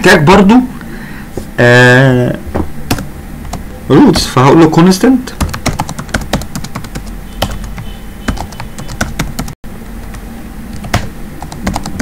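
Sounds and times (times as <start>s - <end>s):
typing on computer keyboard: 5.4s - 9.6s, 10.8s - 12.0s.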